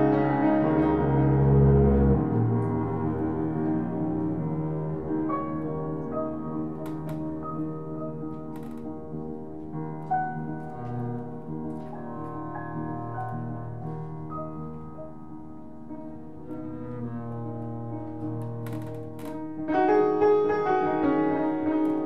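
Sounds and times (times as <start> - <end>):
bowed double bass: 0.0 - 8.0, 10.4 - 14.6, 16.2 - 19.6
upright piano: 0.0 - 22.0.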